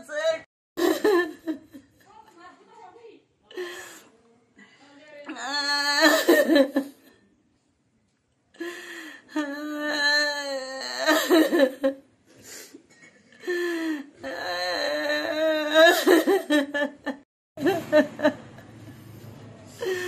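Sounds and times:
woman wailing and crying: 9.4 - 11.9, 14.2 - 16.8.

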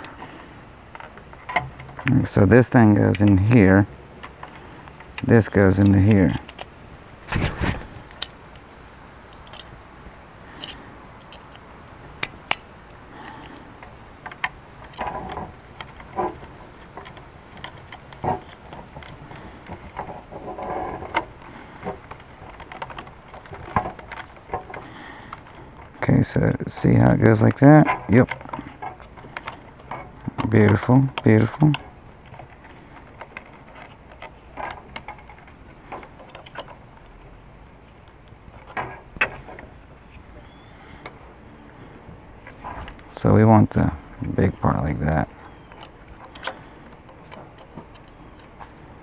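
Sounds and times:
scraping and rustling: 0.0 - 9.8, 13.1 - 49.0
plastic parts clicking: 4.2 - 6.7, 9.3 - 9.7, 10.6 - 26.0, 27.0 - 37.1, 44.2 - 49.0
plastic clicks: 9.3 - 9.7.

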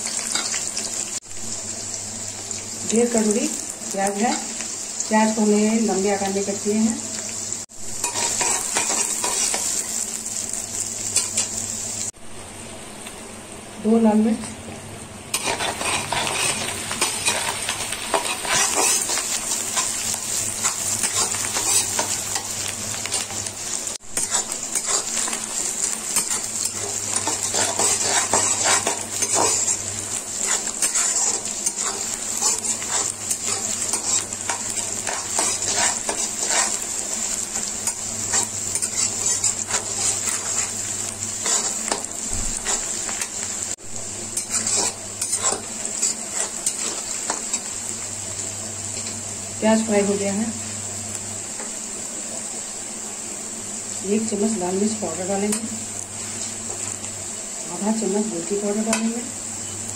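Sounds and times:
onions sizzling in oil: 0.0 - 59.9
spatula scraping a pan: 8.0 - 9.9, 15.3 - 22.5, 24.2 - 36.9, 37.6 - 40.8, 41.4 - 43.2, 44.4 - 47.6.

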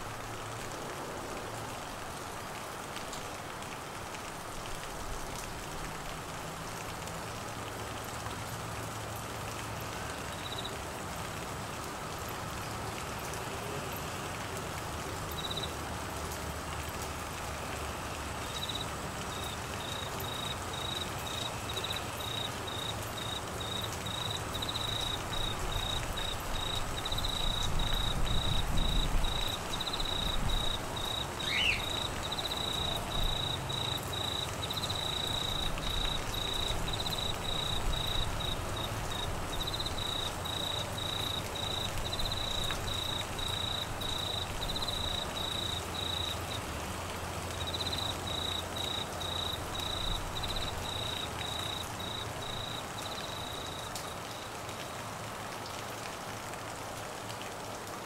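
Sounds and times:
steady rain: 0.0 - 58.0
insect chirping: 10.3 - 10.7, 15.4 - 15.7, 18.4 - 46.7, 47.5 - 54.5.

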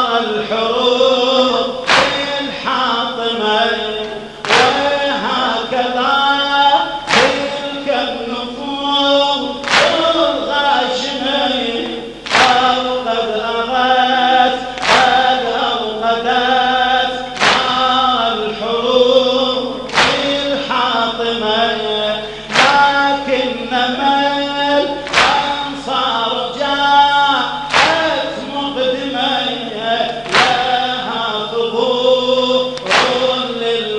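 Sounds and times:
men chanting a lament: 0.0 - 33.9
hand slaps on bare chests: 1.9 - 2.3, 4.4 - 4.8, 7.1 - 7.5, 9.6 - 10.0, 12.2 - 12.6, 14.8 - 15.2, 17.4 - 17.8, 19.9 - 20.3, 22.5 - 22.8, 25.1 - 25.5, 27.7 - 28.0, 30.3 - 30.6, 32.8 - 33.3.

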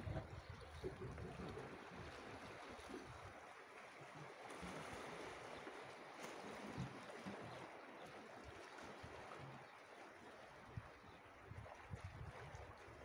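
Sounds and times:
wind thumps on microphone: 0.0 - 1.2
calm sea washing: 0.0 - 13.0.

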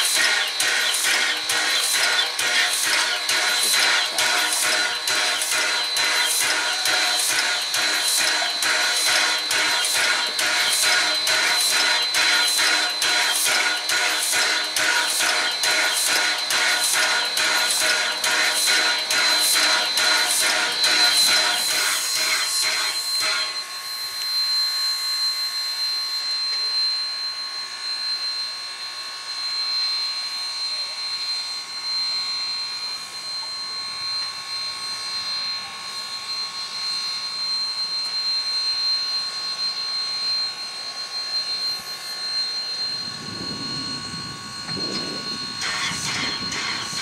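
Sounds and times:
steam locomotive hissing: 0.0 - 23.7, 42.9 - 47.0
high whine: 0.0 - 47.0.

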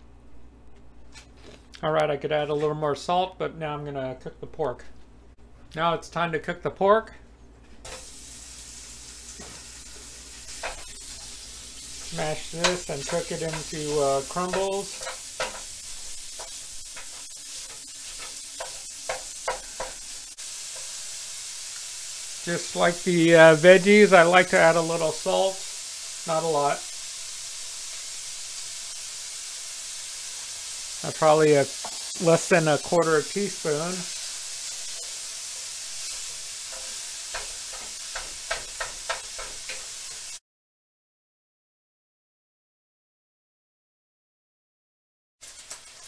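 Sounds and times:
meat sizzling in a frying pan: 7.8 - 40.4, 45.4 - 46.0.

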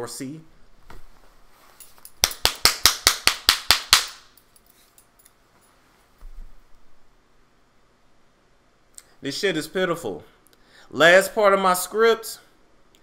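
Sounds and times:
sharp snaps: 2.2 - 4.4.

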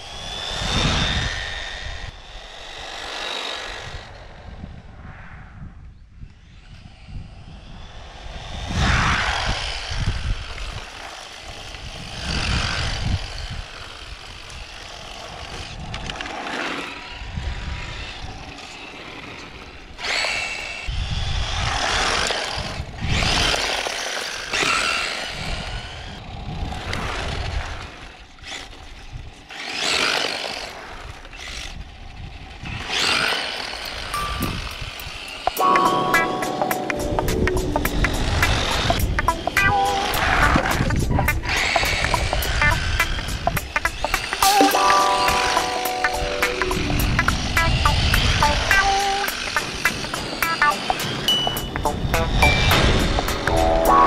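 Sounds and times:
electric toy car motor whine: 0.0 - 4.5, 6.4 - 35.6, 38.3 - 44.5, 47.0 - 53.3.

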